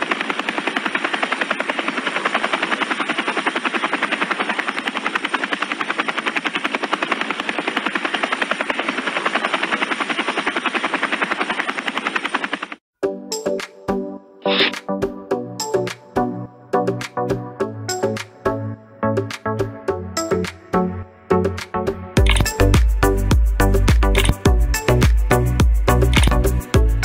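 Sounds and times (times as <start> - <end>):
helicopter rotor chopping: 0.0 - 12.9, 22.2 - 27.0.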